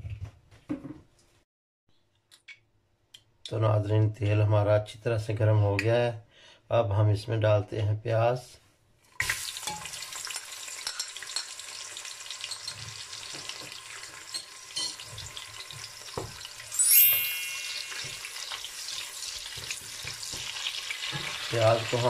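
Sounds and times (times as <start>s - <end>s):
onions sizzling in oil: 9.1s - 16.8s, 17.4s - 22.0s
high-pitched squeak: 16.7s - 18.7s.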